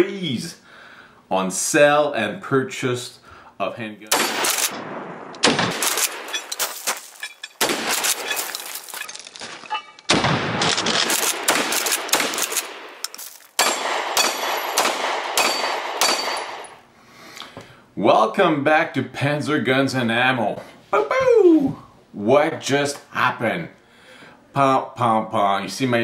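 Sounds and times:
pistol shots: 0:04.1 - 0:07.0, 0:07.6 - 0:08.4, 0:10.1 - 0:16.8
shotgun shots: 0:04.1 - 0:07.0, 0:07.6 - 0:08.6, 0:10.1 - 0:13.0, 0:13.6 - 0:16.8.

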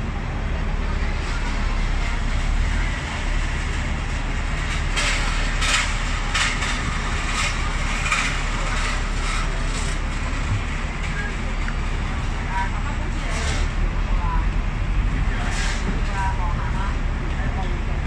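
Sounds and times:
idling buses and cars rumble: 0:00.0 - 0:18.0.

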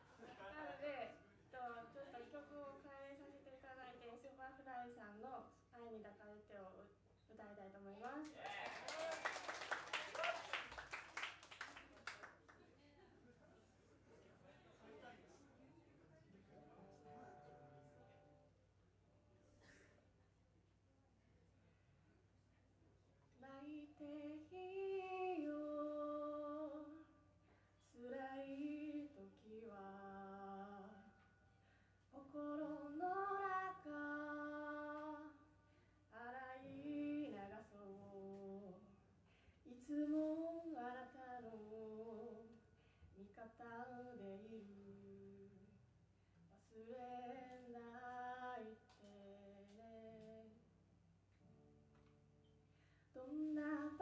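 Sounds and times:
woman singing a ballad: 0:23.4 - 0:27.1, 0:27.8 - 0:31.2, 0:32.1 - 0:35.5, 0:36.1 - 0:38.9, 0:39.7 - 0:42.6, 0:43.2 - 0:45.8, 0:46.6 - 0:50.6, 0:53.1 - 0:54.0
acoustic guitar: 0:43.9 - 0:54.0.

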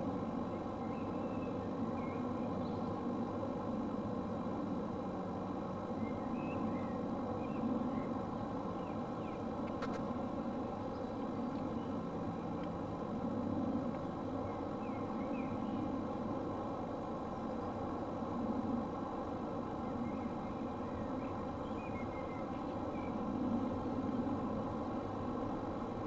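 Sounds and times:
sharp click: 0:09.7 - 0:10.1.

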